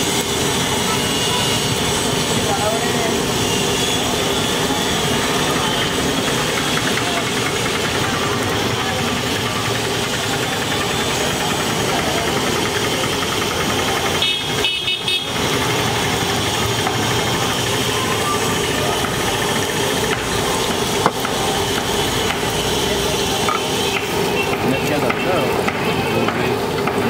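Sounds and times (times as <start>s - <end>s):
hot oil sizzling: 0.0s - 27.0s
street traffic noise: 0.0s - 27.0s
vehicle horn: 0.9s - 1.8s, 14.1s - 15.6s, 22.0s - 24.9s, 25.7s - 26.4s.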